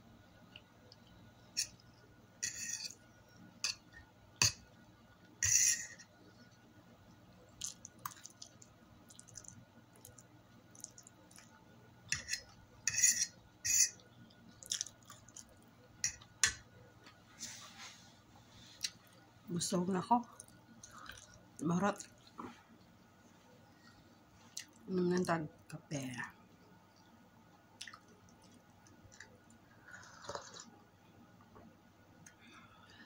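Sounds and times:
spaghetti slurping and chewing: 14.5 - 15.6, 20.3 - 21.4, 27.8 - 30.8.

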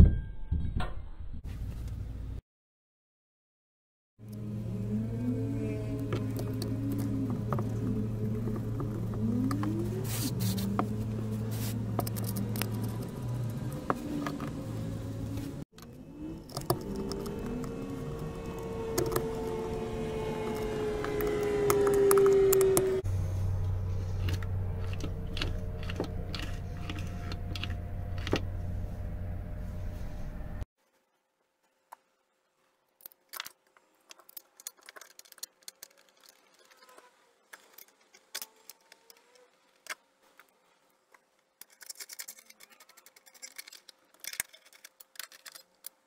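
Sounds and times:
drawn-out tone: 4.2 - 30.6
steady low hum: 4.2 - 30.7.

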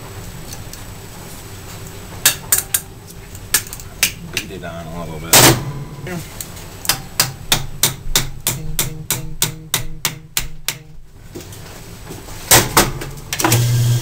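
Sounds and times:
small hammer tapping metal: 6.8 - 11.0.

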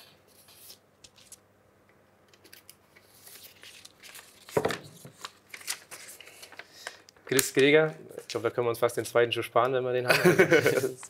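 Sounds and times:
paper rustling and crinkling: 0.0 - 1.4, 2.4 - 8.5.

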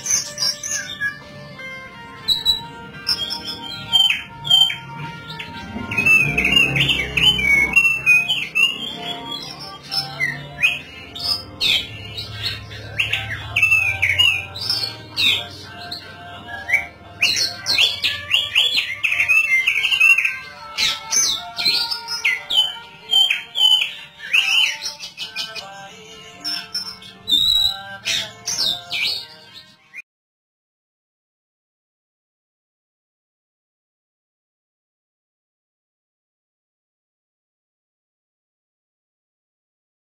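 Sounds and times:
bird singing chirps and whistles: 0.0 - 1.2, 2.2 - 25.7, 26.4 - 30.0.

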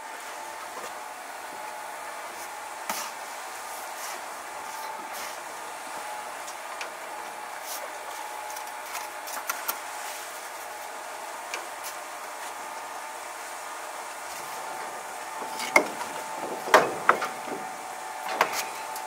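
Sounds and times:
trowel scraping on stone: 15.5 - 16.2.

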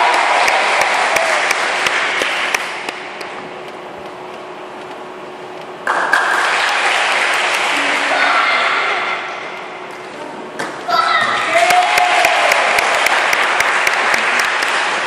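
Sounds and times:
applause with cheering voices: 0.0 - 2.9, 5.9 - 8.2, 11.5 - 15.0
children clapping in rhythm: 0.0 - 3.4, 5.8 - 8.2, 11.6 - 15.0.

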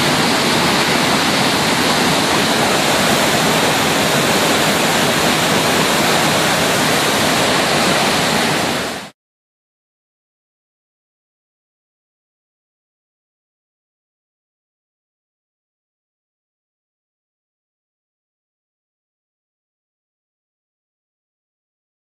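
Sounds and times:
flood water rushing: 0.0 - 9.2.

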